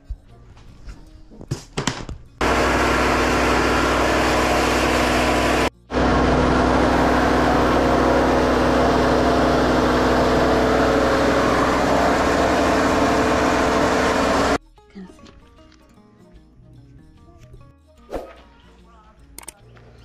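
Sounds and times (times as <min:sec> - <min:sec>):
grinding mill motor roar: 0:02.4 - 0:14.6.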